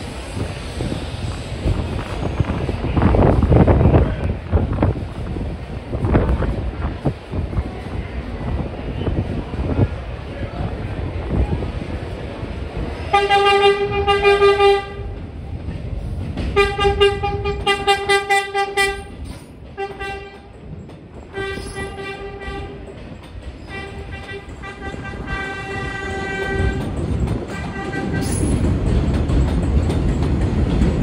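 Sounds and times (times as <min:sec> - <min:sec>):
train rumbling: 0:00.0 - 0:31.0
train horn blasts: 0:13.1 - 0:15.1, 0:16.6 - 0:19.1, 0:19.8 - 0:20.5, 0:21.3 - 0:22.9, 0:23.7 - 0:26.9, 0:27.5 - 0:28.5.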